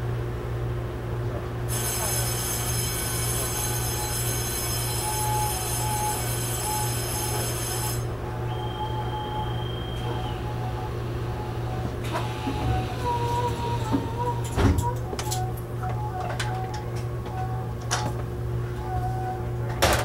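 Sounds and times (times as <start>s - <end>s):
train running hum: 0.0s - 20.0s
high steady tone: 1.8s - 12.0s
high-pitched whining tones: 1.8s - 17.8s.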